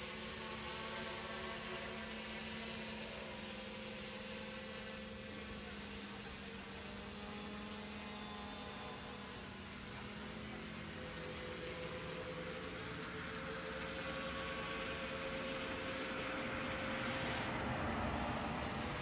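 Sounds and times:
quadcopter motors humming: 0.0s - 19.0s.

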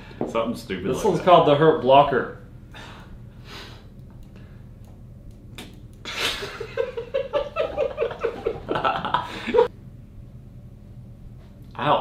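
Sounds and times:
men laughing: 6.1s - 9.7s.

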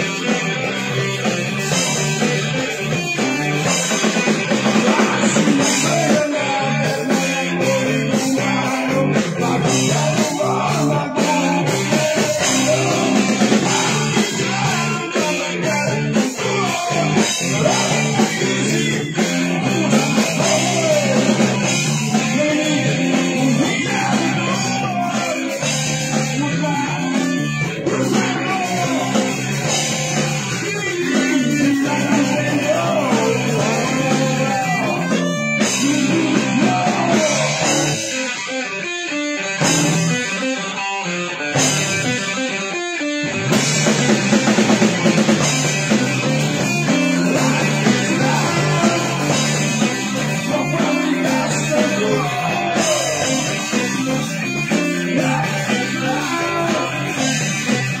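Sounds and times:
drum kit: 0.0s - 58.0s
electric guitars: 0.0s - 58.0s.

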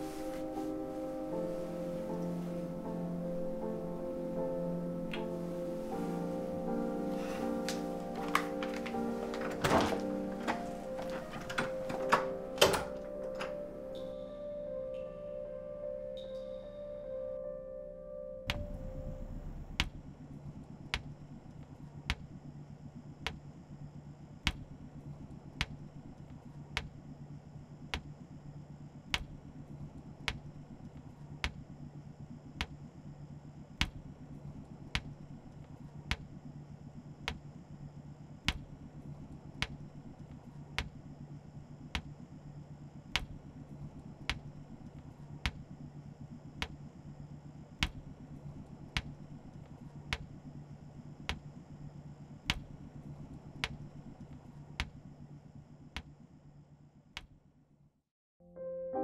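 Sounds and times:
low constant hum: 0.0s - 57.7s
slow steady ticking: 18.5s - 33.0s, 33.8s - 36.5s, 38.4s - 57.4s.

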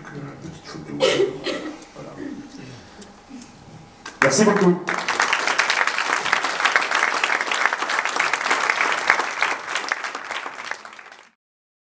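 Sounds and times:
audience applauding: 4.1s - 11.4s.

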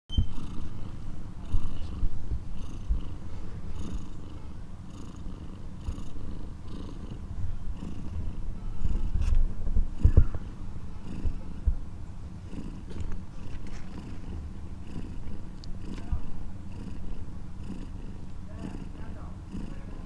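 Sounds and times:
cat purring: 0.1s - 20.0s.

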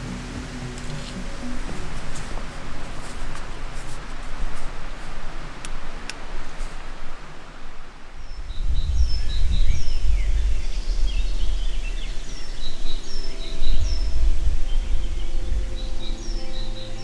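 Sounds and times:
loud low rumble: 0.0s - 5.6s
birds chirping and whistling: 8.3s - 17.0s.

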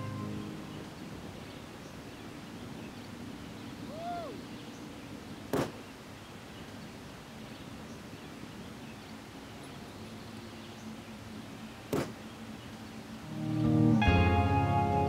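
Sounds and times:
outdoor background noise: 0.0s - 15.0s
rising and falling call: 3.8s - 4.6s.

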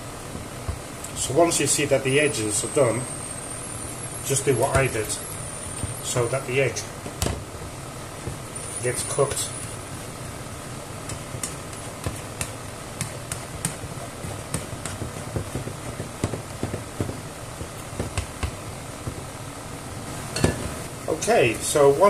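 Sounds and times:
egg sizzling in a pan: 2.6s - 21.6s.

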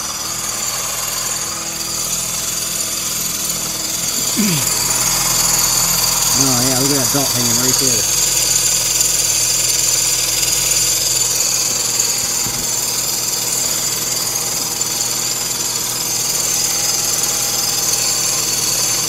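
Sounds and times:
car engine whining: 3.6s - 14.7s.

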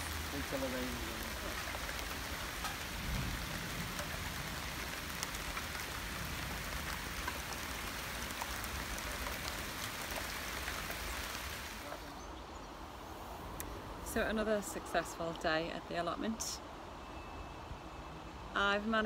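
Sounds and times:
rain hissing with drop ticks: 0.0s - 12.2s, 13.5s - 15.6s.

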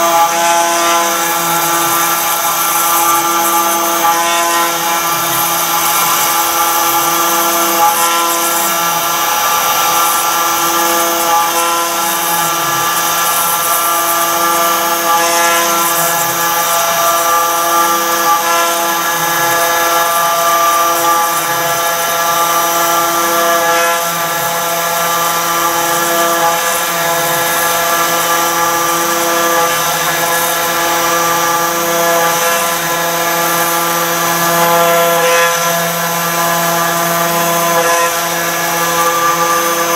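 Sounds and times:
router spindle cutting stone: 0.0s - 39.9s.

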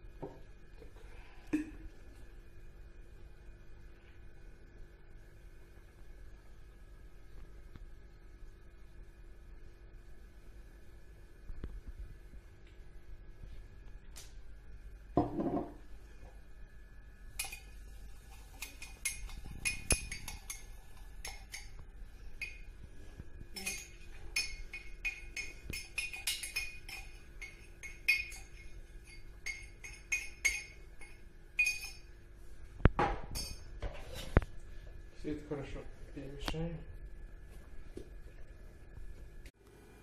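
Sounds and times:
metal spoon clinking on glass: 17.4s - 17.8s, 18.4s - 21.8s, 22.4s - 22.7s, 23.6s - 32.1s, 33.3s - 33.7s.

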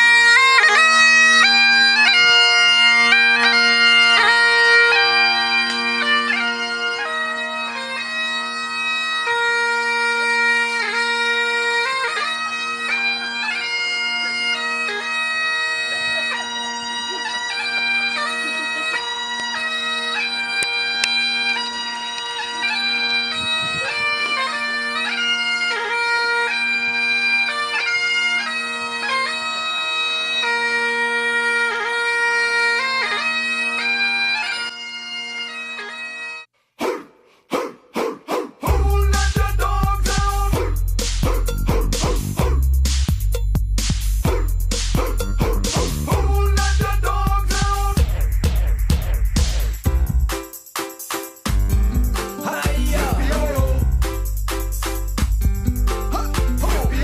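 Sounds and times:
bagpipe playing a march: 0.0s - 36.5s, 38.8s - 40.6s, 46.1s - 48.1s, 52.4s - 53.9s, 56.1s - 57.0s.

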